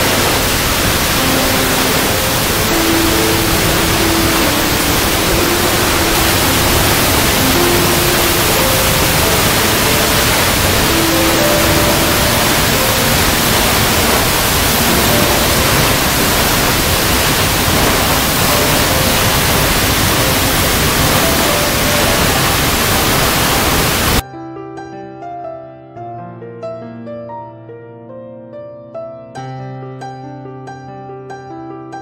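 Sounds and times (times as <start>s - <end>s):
faint music notes: 0.0s - 24.2s
waterfall rushing into a pool: 0.0s - 24.2s
solo piano music: 0.0s - 32.0s.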